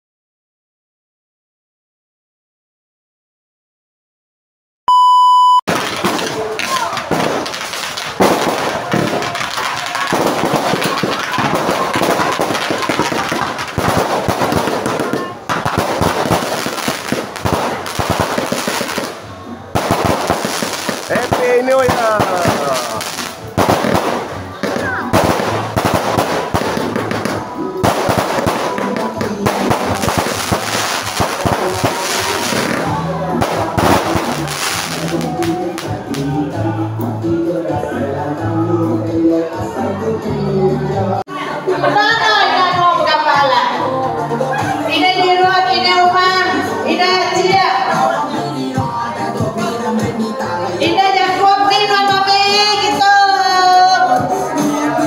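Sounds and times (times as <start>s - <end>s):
fireworks crackling: 5.7s - 36.5s.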